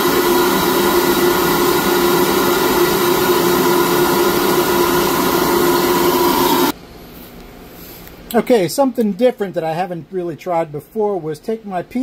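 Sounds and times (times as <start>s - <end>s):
steady rush of air: 0.0s - 6.8s.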